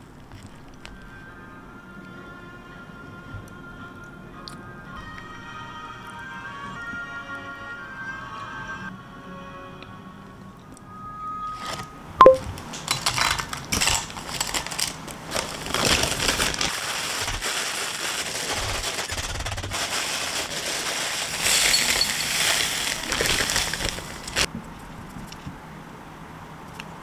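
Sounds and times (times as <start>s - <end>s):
crackers being crushed: 12.7s - 24.5s
plastic bag crinkling: 13.0s - 24.5s.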